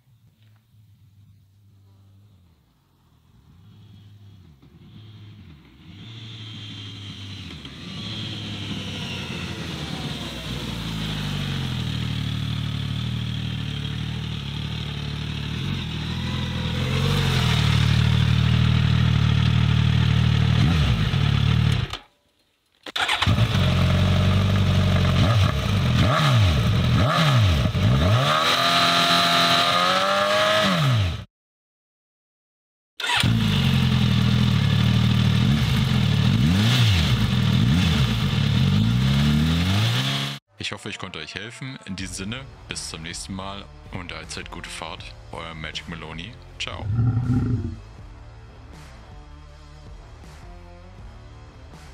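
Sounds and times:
motorcycle passing by: 0:03.1 - 0:21.7, 0:46.9 - 0:47.8
motorcycle engine revving: 0:03.2 - 0:22.0, 0:23.0 - 0:31.3, 0:33.0 - 0:40.4, 0:46.8 - 0:48.0.

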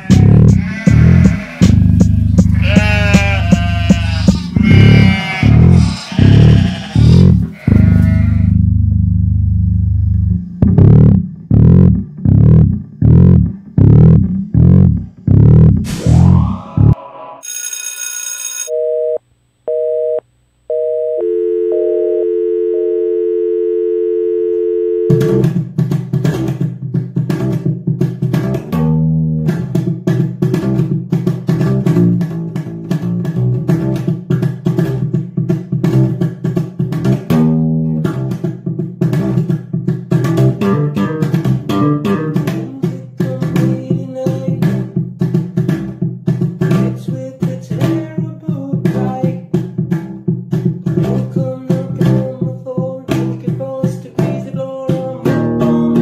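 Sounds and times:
electric bass guitar playing: 0:00.0 - 0:17.0, 0:21.7 - 0:52.5, 0:53.1 - 0:53.5, 0:54.2 - 0:56.0
burst of noise: 0:15.8 - 0:17.0
steady electronic dial tone: 0:17.4 - 0:25.4
two-tone beeps: 0:18.6 - 0:25.4.

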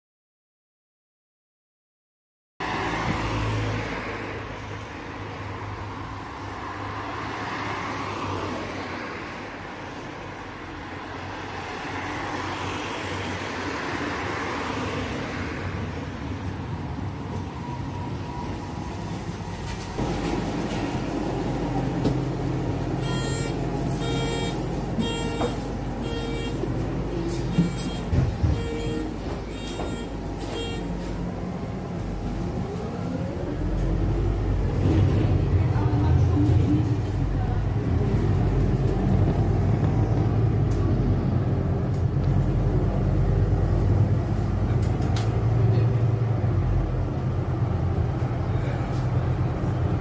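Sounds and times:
cars driving past: 0:02.6 - 0:50.0
low engine hum: 0:19.9 - 0:50.0
short electronic beeps: 0:23.0 - 0:26.7, 0:27.3 - 0:30.9.

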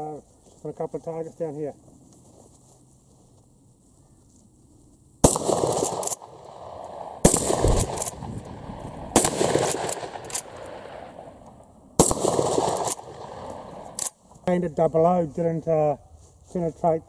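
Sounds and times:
shotgun shots with echo: 0:05.2 - 0:11.0, 0:12.0 - 0:13.8.

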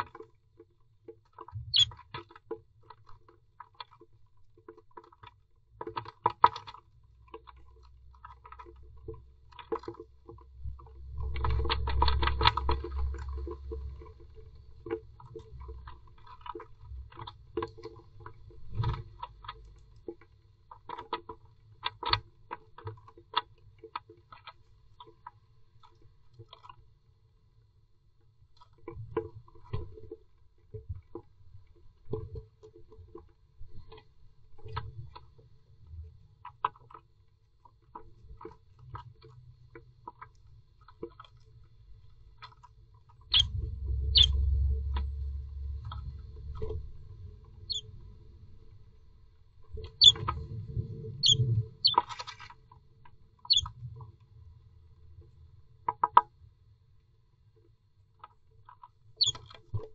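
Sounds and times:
small clicks: 0:01.1 - 0:26.8, 0:28.6 - 0:48.8, 0:49.6 - 0:54.2, 0:58.2 - 0:59.9
short high bird cheeps: 0:01.7 - 0:01.9, 0:44.1 - 0:44.3, 0:51.2 - 0:52.0
bird scratching and rustling in nest: 0:49.6 - 0:52.7.

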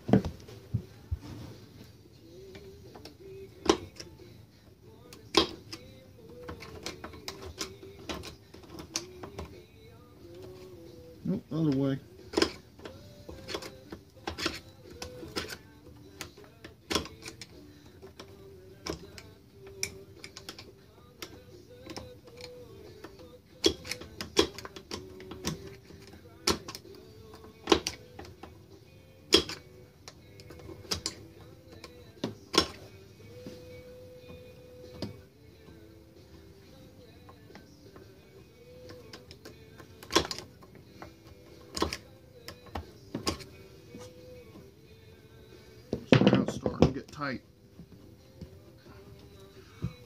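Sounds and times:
faint background music: 0:00.0 - 0:50.0
screwdriver clicking on metal: 0:12.3 - 0:28.4, 0:38.7 - 0:44.2.

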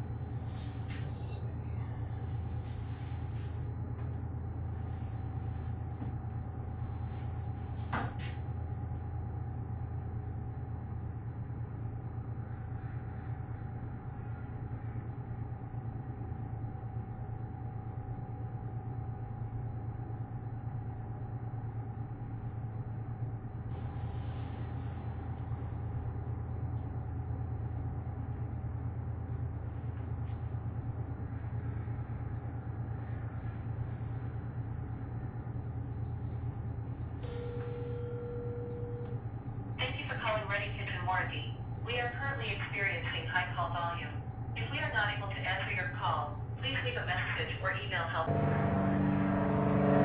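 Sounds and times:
low machine hum: 0:00.0 - 0:50.0
steady tone: 0:42.9 - 0:50.0.

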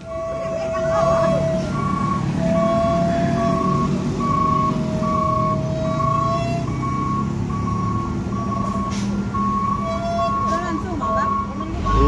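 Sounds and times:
truck engine climbing uphill: 0:00.0 - 0:12.0
electronic warning beeper: 0:06.8 - 0:12.0.

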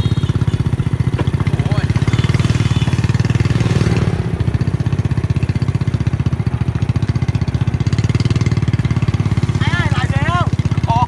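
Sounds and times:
small motorcycle engine running: 0:00.0 - 0:11.0.

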